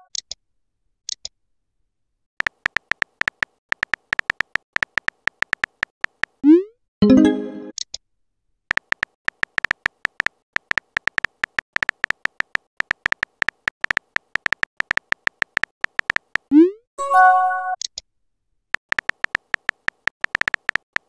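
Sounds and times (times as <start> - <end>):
phone keyboard clicks: 2.4 - 6.4, 8.7 - 16.5, 18.8 - 21.0.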